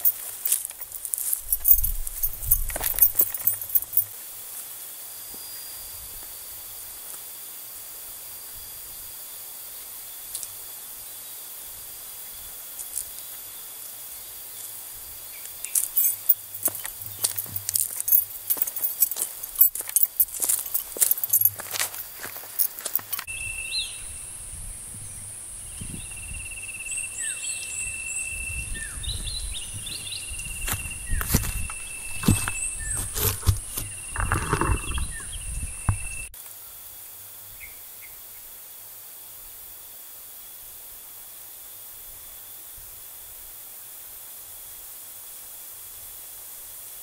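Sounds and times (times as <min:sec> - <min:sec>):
footsteps crunching on stones: 0:00.0 - 0:04.2, 0:15.7 - 0:23.3, 0:29.8 - 0:36.2
outdoor background hiss: 0:00.0 - 0:34.6, 0:35.2 - 0:47.0
high insect drone: 0:00.0 - 0:47.0.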